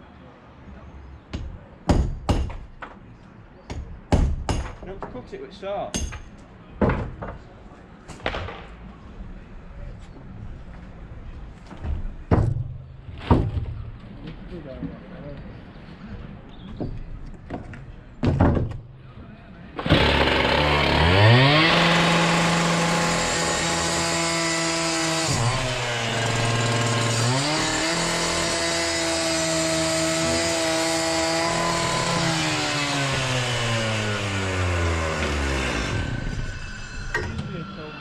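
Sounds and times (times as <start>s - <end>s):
knocks: 6.0s - 7.4s, 11.8s - 13.8s
angle grinder whine: 19.8s - 38.0s.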